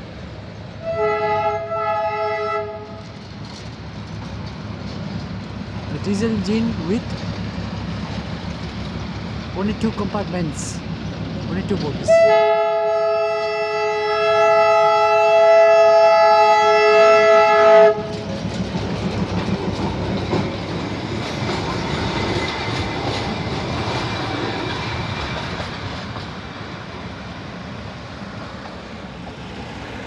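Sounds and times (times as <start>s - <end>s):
train rumbling and clattering past: 0.0s - 30.0s
diesel locomotive horn: 0.8s - 3.1s, 12.0s - 18.2s.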